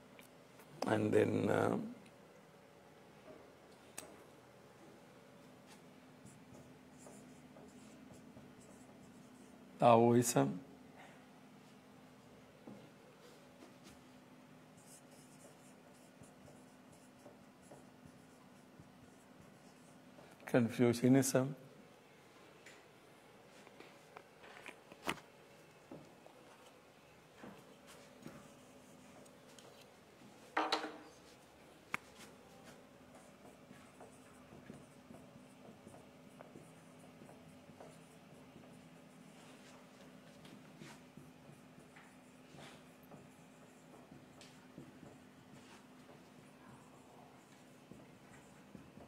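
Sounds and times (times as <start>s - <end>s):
marker writing on whiteboard: 5.4s - 9.8s, 13.6s - 20.4s, 25.9s - 49.0s.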